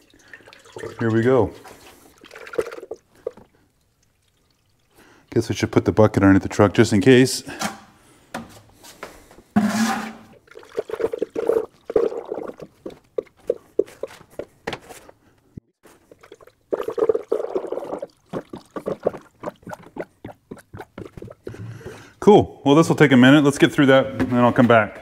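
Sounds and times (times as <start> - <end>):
liquid glugging from a jug: 0.0 - 5.4, 9.6 - 14.2, 15.9 - 22.1.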